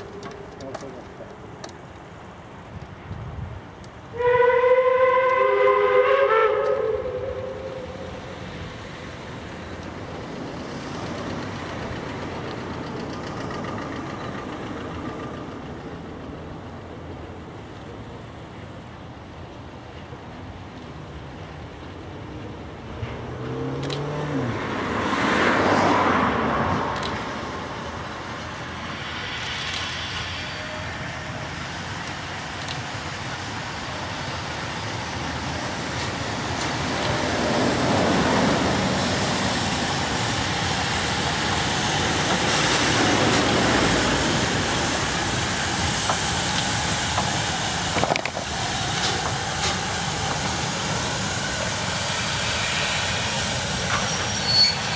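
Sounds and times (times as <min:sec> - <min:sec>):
traffic rumble: 0:00.0 - 0:54.9
vehicles passing: 0:20.9 - 0:54.1.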